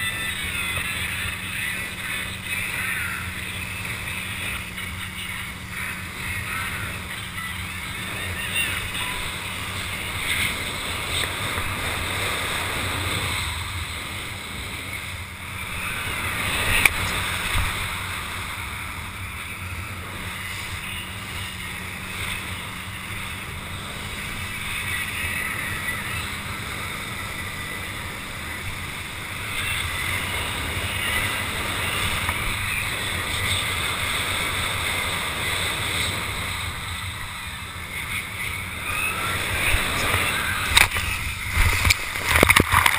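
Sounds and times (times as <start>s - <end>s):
water rushing and hissing: 0.0s - 42.9s
wind buffeting microphone: 38.7s - 42.9s.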